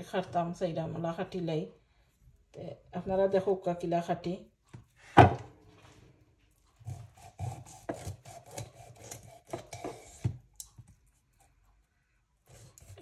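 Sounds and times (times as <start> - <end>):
knife rasping through fish: 6.6 - 11.5, 12.4 - 13.0.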